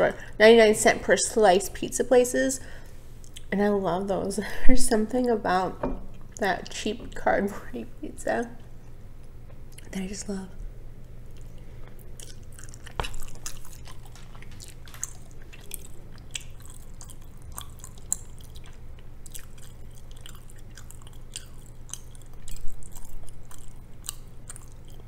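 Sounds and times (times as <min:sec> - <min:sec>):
steady low hum: 0:00.0 - 0:25.0
wet chewing mouth clicks: 0:11.0 - 0:25.0.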